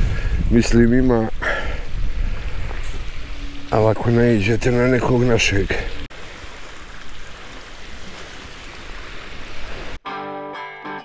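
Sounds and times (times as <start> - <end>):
wind on microphone: 0.0 - 6.1
guitar music: 10.0 - 11.0.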